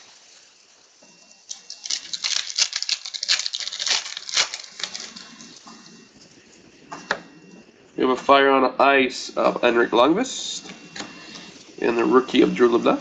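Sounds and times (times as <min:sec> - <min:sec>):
foil wrapper tearing and crinkling: 0:01.5 - 0:05.5.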